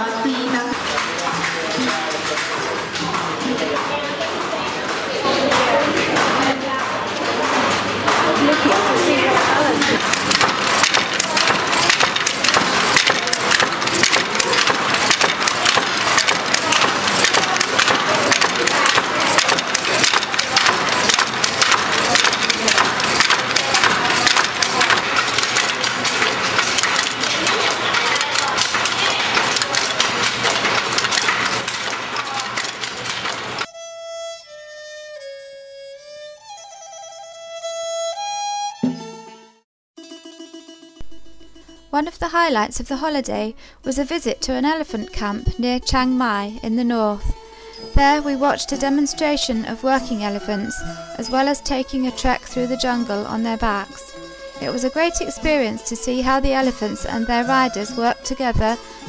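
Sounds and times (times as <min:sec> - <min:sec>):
wooden looms clattering: 0:00.0 - 0:33.7, 0:47.1 - 0:59.0
slow instrumental melody: 0:33.7 - 0:42.0.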